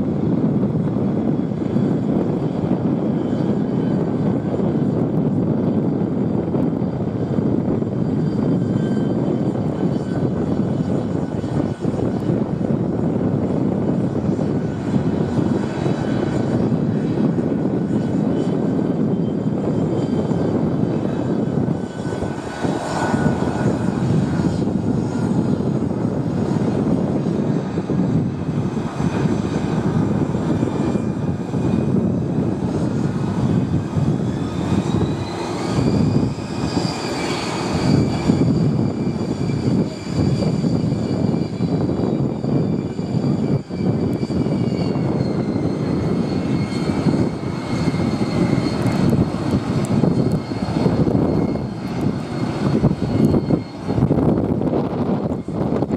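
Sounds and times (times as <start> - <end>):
jet engines whining: 0.0 - 55.9
steady rumble: 0.0 - 55.9.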